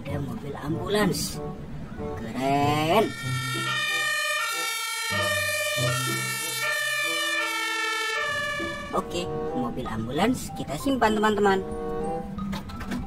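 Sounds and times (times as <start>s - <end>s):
emergency vehicle siren: 1.8s - 9.7s.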